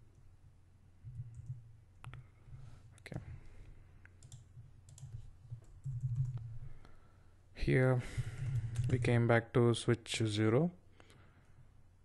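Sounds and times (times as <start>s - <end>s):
computer mouse clicks: 4.0s - 6.5s, 8.6s - 9.0s.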